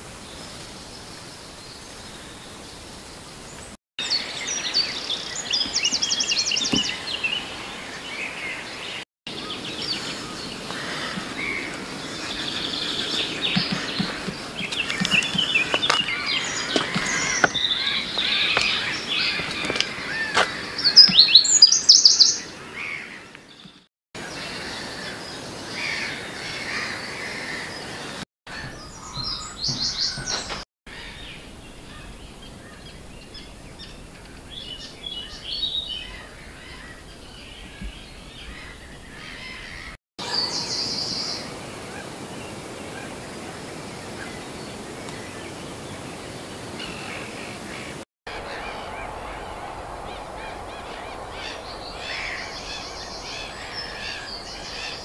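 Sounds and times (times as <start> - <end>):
birds calling and chirping: 0.2 - 55.0
background hiss: 40.5 - 55.0
fast high bird trills: 48.3 - 55.0.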